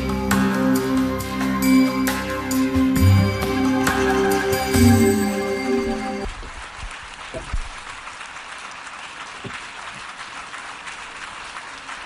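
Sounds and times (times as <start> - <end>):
music: 0.0 - 6.3
audience applauding: 3.8 - 12.0.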